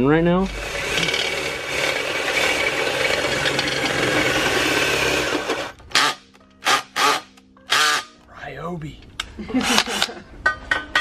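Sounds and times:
cordless drill drilling into steel: 0:00.6 - 0:08.1.

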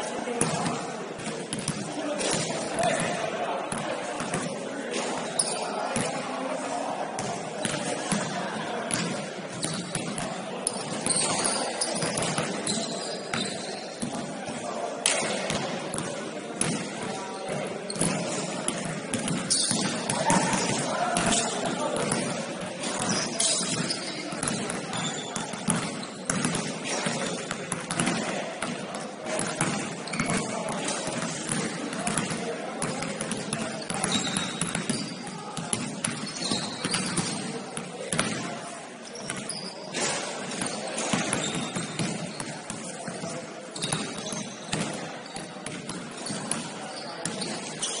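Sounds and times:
indistinct voices echoing: 0:01.7 - 0:32.9
basketball bouncing: 0:23.0 - 0:30.5, 0:34.0 - 0:37.4, 0:43.8 - 0:45.0.

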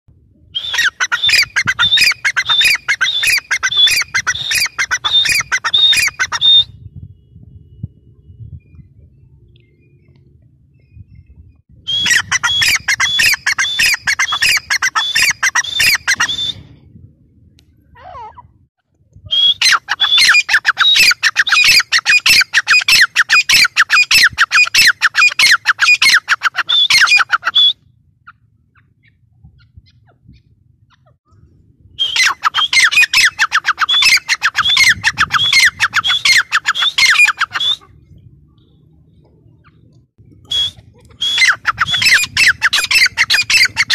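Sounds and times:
francolin calling: 0:00.6 - 0:06.7.

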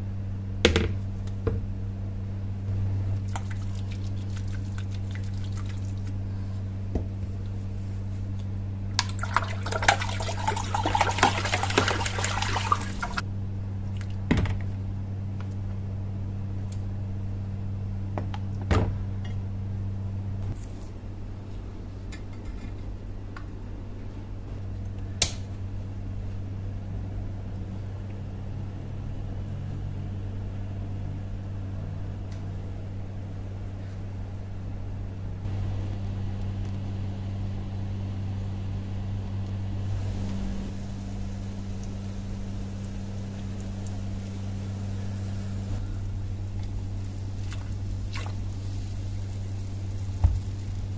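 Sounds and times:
steady low hum: 0:00.0 - 0:50.9
water sloshing and fizzing: 0:03.1 - 0:06.5, 0:08.9 - 0:13.2, 0:39.9 - 0:50.9.

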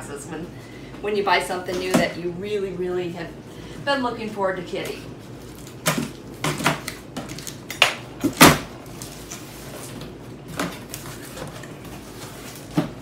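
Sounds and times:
cardboard and tape cracking: 0:06.8 - 0:09.5.

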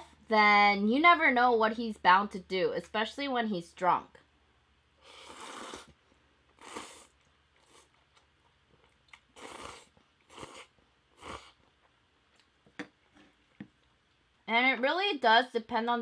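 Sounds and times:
person slurping noodles: 0:05.0 - 0:06.0, 0:06.6 - 0:08.0, 0:09.3 - 0:11.6
chewing mouth clicks: 0:06.7 - 0:11.4.

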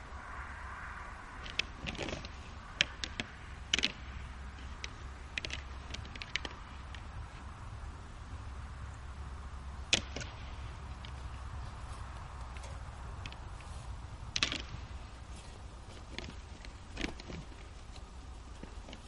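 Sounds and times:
steady low rumble: 0:00.0 - 0:19.0
antlers clacking together: 0:01.4 - 0:07.1, 0:14.3 - 0:15.0.

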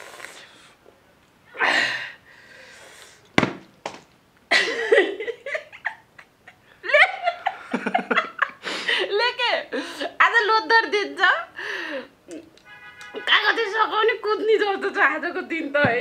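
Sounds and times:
sharp knock: 0:03.4 - 0:04.0
woman and man laughing: 0:04.5 - 0:09.1.

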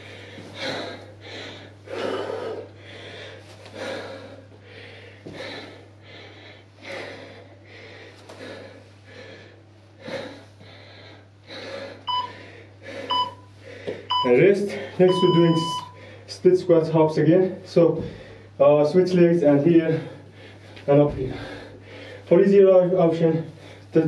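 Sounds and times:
man breathing hard: 0:00.0 - 0:15.1, 0:15.7 - 0:16.3, 0:18.0 - 0:18.6, 0:19.8 - 0:22.3, 0:23.4 - 0:24.0
steady low hum: 0:00.0 - 0:24.0
short electronic beep: 0:12.1 - 0:12.3, 0:15.1 - 0:16.0.

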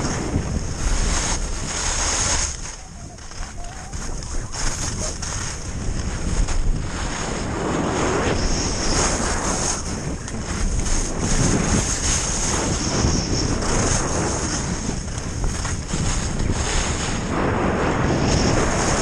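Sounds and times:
skis scraping on snow: 0:00.0 - 0:19.0
wind buffeting microphone: 0:00.0 - 0:19.0.

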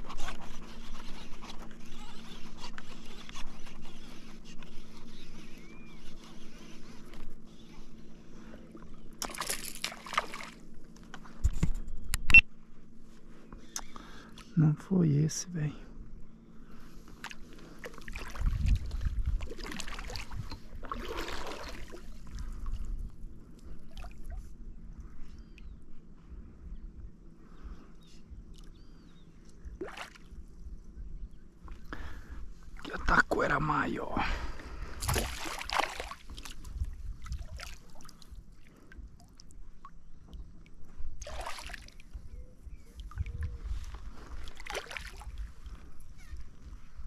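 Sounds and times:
water splashing: 0:09.2 - 0:10.6, 0:19.4 - 0:22.1, 0:29.8 - 0:30.3, 0:35.0 - 0:36.5, 0:41.2 - 0:42.0, 0:44.4 - 0:45.4
water splashing against kayak: 0:34.9 - 0:39.4.

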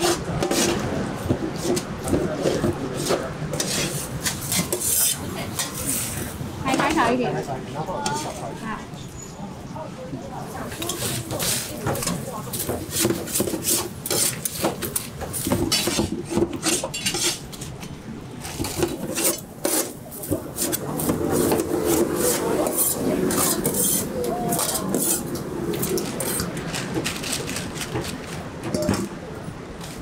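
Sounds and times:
metal spatula scraping on griddle: 0:02.4 - 0:06.2, 0:12.9 - 0:17.6, 0:18.6 - 0:26.5.

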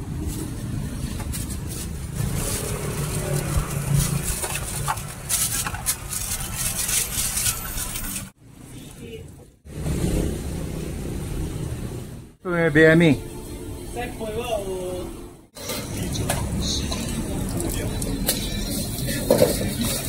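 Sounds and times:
road traffic hum: 0:00.0 - 0:20.0.

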